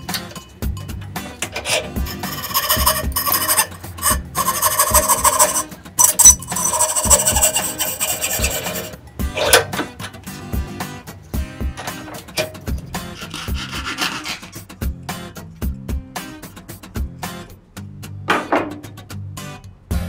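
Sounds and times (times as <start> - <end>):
coping saw rasping: 1.7 - 9.0, 13.1 - 14.6.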